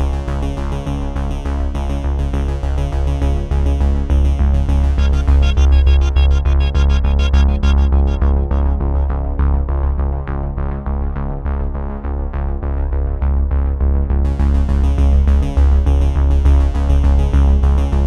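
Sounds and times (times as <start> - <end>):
electronic synthesizer music: 4.7 - 9.8.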